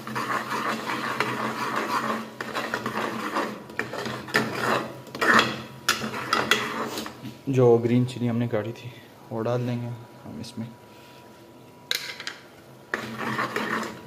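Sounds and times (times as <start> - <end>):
spoon scraping and stirring in pot: 0.0 - 7.3, 12.0 - 14.0.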